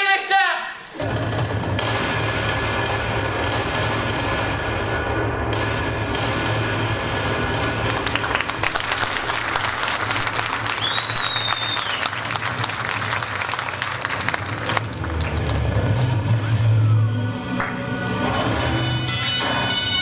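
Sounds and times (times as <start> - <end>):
audience applauding: 7.5 - 16.7
short whistle: 10.8 - 12.1.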